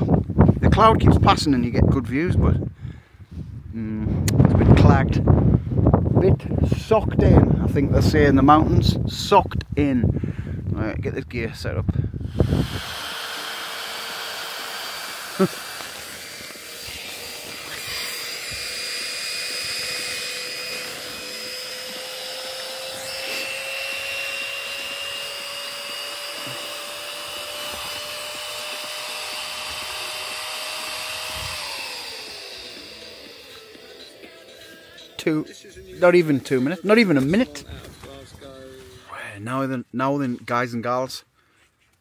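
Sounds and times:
air pump whirring: 12.2 - 34.8.

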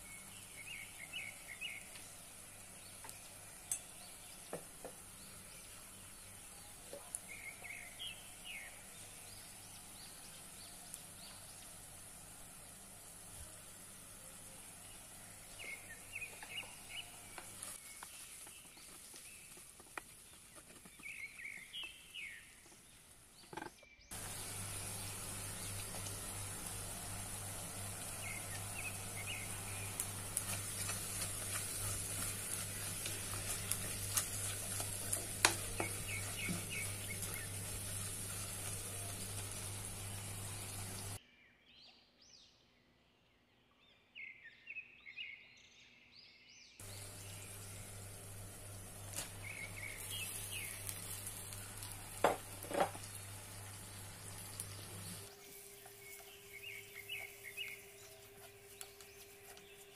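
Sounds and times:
onions sizzling in oil: 0.0 - 23.2, 24.1 - 41.2, 46.8 - 59.9
wooden spatula scraping pot: 30.1 - 39.5.

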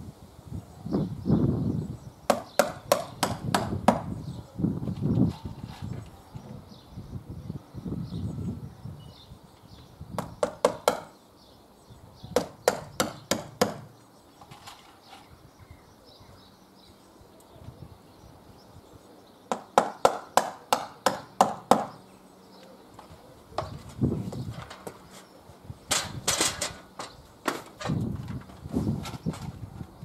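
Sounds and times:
hammer striking nails: 2.3 - 4.1, 10.2 - 11.1, 12.4 - 13.9, 19.5 - 22.0.

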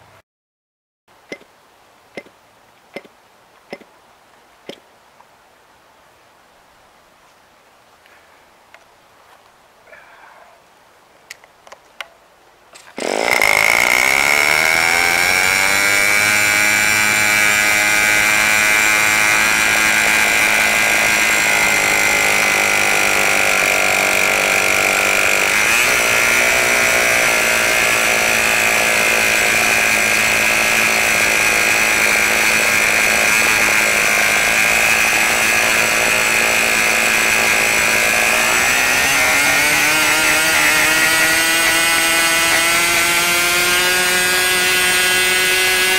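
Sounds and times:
model engine running at high revs: 13.0 - 45.9.

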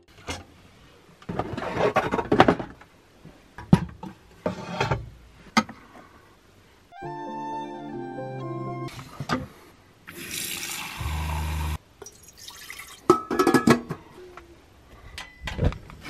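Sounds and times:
objects scraping and knocking: 1.2 - 2.9, 3.6 - 5.8
soft background music: 6.9 - 8.9.

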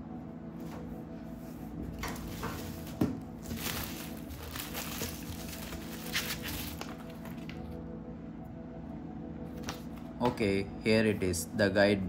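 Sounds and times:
steady low hum: 0.0 - 12.0
plastic wrapping crinkling: 2.2 - 7.8.

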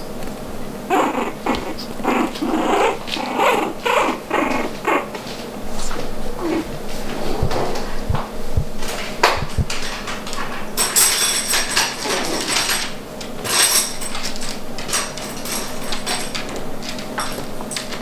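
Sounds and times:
puppies scuffling: 0.0 - 18.0.

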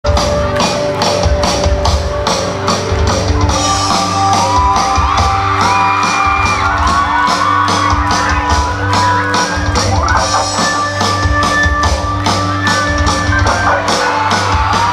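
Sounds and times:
live pop-rock band: 0.0 - 14.9
drum beat: 0.1 - 14.9
electric guitars: 0.1 - 14.9
crowd shouting: 4.0 - 10.6, 13.2 - 14.9.

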